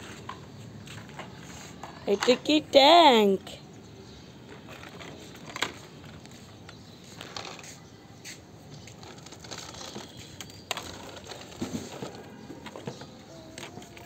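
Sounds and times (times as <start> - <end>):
plastic toys clattering in a tub: 0.0 - 2.8, 4.4 - 7.6, 8.8 - 14.0.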